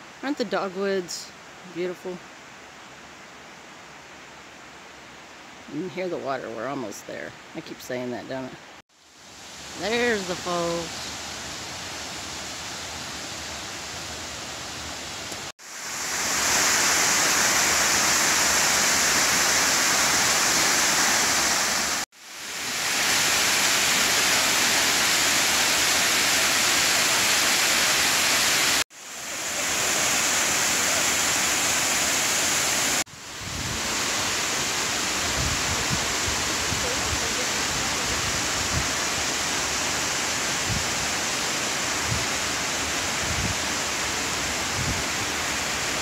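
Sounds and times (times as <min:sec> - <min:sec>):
waterfall rushing: 0:09.2 - 0:46.0.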